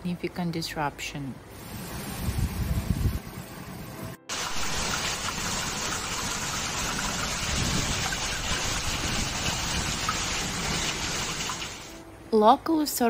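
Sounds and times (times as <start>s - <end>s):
hailstones ticking: 4.3s - 12.0s
heavy rain: 4.3s - 12.0s.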